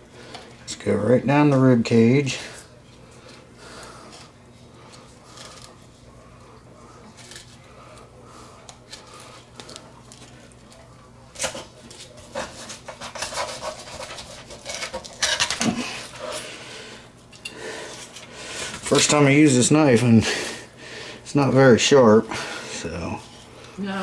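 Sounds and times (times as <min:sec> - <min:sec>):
knife scraping through fish bones: 0:12.3 - 0:16.2.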